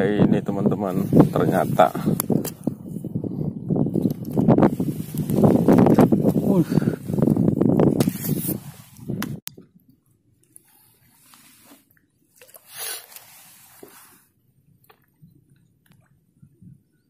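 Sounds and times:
fishing pole swishing: 7.9s - 9.3s, 10.9s - 14.2s.

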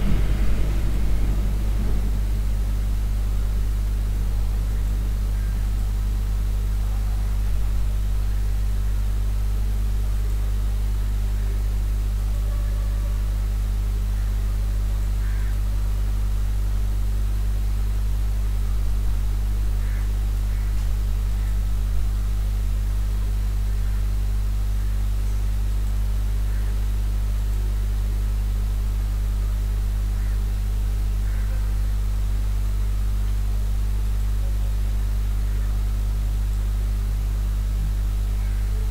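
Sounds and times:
even hiss: 0.0s - 9.2s
low electrical hum: 0.0s - 38.9s.

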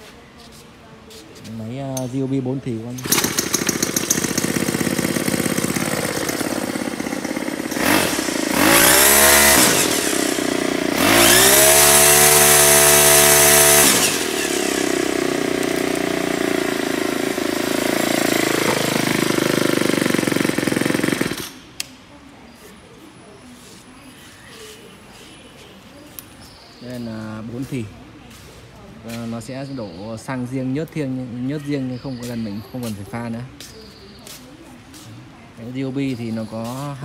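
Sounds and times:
string trimmer engine revving: 2.0s - 22.0s.

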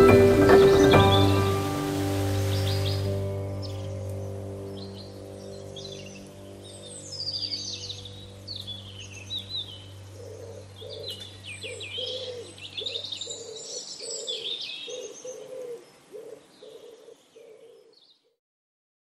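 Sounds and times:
small birds chirping: 2.2s - 18.4s
doves cooing: 10.1s - 17.9s.

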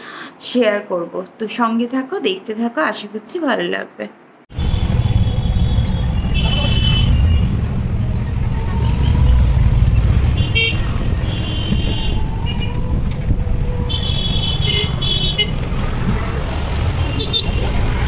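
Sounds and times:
vehicle horn toots: 4.5s - 7.5s, 10.3s - 12.7s, 13.9s - 15.6s, 17.0s - 17.8s
road and engine rumble: 4.5s - 18.0s.

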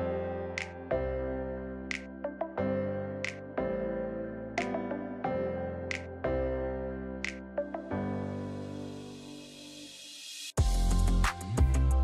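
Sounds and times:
electronic music with heavy bass beat: 10.6s - 12.0s.

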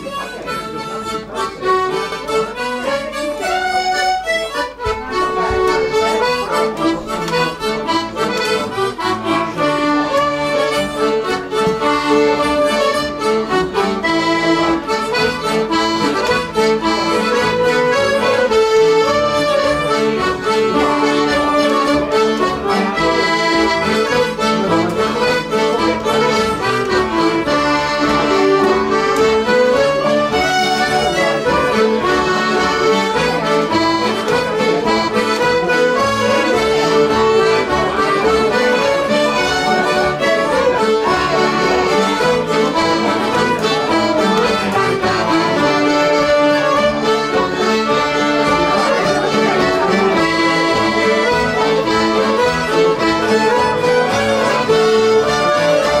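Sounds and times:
button accordion: 0.0s - 56.0s
fiddles: 0.0s - 56.0s.

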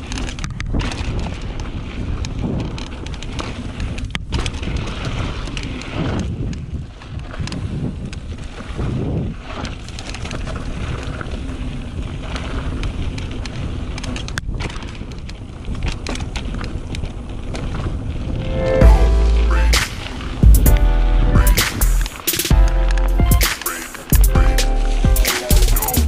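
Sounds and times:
small clicks and rattles: 0.0s - 8.3s, 12.2s - 18.1s
mountain bike rumble on dirt: 0.0s - 19.3s
wind buffeting microphone: 0.0s - 22.1s.

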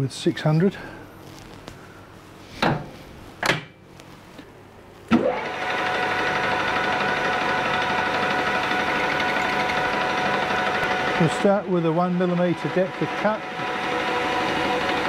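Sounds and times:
metal lathe running: 5.1s - 15.0s.

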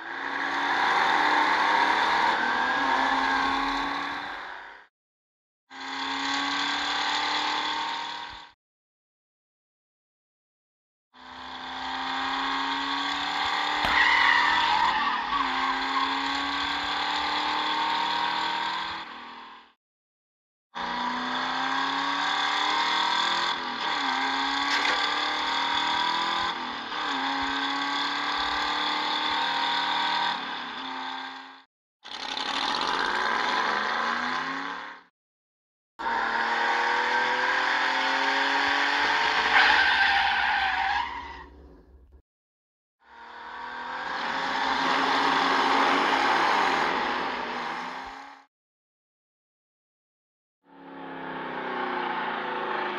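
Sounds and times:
race car engine revving: 11.3s - 19.4s, 20.8s - 31.4s, 36.0s - 42.2s.

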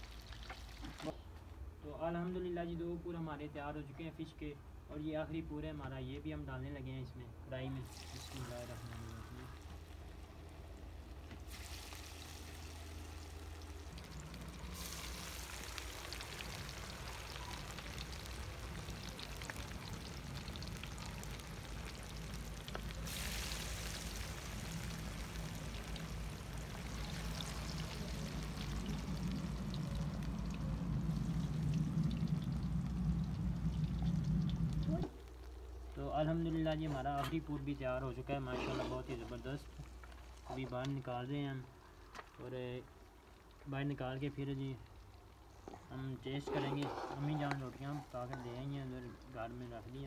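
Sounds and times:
fish deep-frying with crackles: 0.0s - 1.2s, 7.8s - 46.5s
low hum: 12.5s - 36.0s.

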